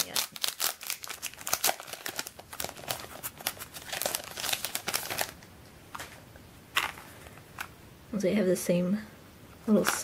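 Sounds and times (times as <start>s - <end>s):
cellophane crinkling and tearing: 0.0s - 5.4s.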